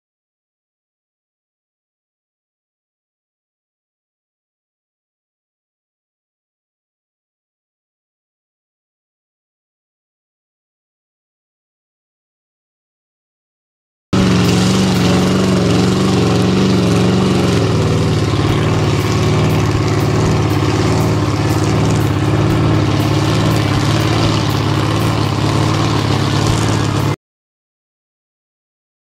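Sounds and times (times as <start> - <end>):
tires churning water: 14.2 - 27.2
truck engine running hard: 14.2 - 27.2.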